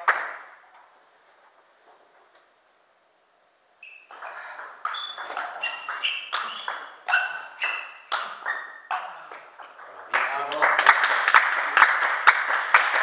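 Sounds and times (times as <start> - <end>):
ball pinging on table: 4.1 - 10.2.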